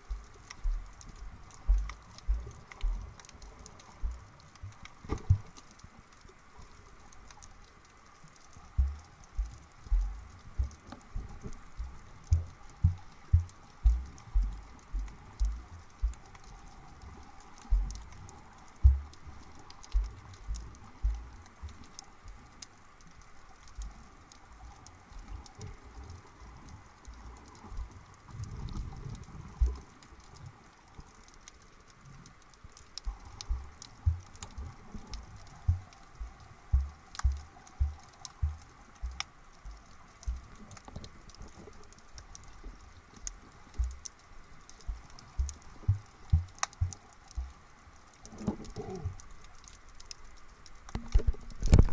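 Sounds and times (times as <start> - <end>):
low underwater thumps: 0.0 - 5.5, 8.7 - 16.6, 17.6 - 18.2, 18.8 - 21.9, 29.6 - 29.8, 33.0 - 40.5, 43.8 - 44.1, 44.9 - 47.6
underwater clicks and crackles: 0.0 - 51.9.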